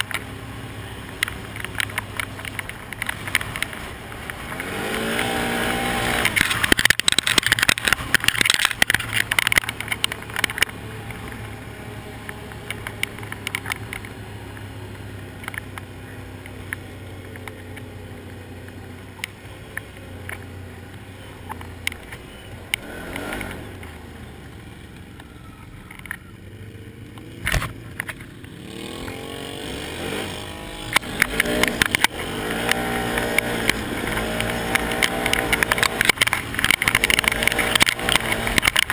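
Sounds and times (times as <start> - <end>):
quad bike engine revving: 0.0 - 38.9
stones clattering against vehicle: 1.0 - 11.6, 12.2 - 17.9, 30.8 - 38.9.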